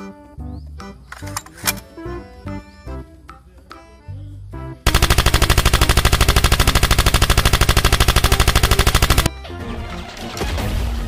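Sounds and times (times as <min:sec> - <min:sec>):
automatic gunfire burst: 0:04.9 - 0:09.3.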